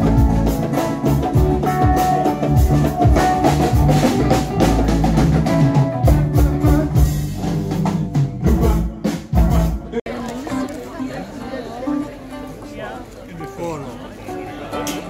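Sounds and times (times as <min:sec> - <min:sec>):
bass line: 0:00.0 - 0:10.0
drum kit beat: 0:00.0 - 0:10.1.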